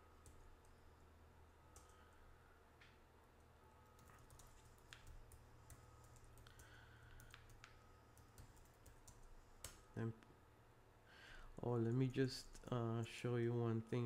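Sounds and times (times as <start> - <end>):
low steady hum: 0.0 - 14.0
keyboard typing clicks: 3.8 - 9.8.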